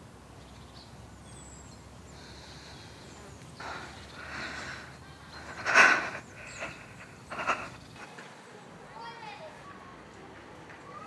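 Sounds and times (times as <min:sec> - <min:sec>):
person breathing hard: 0:02.1 - 0:08.1.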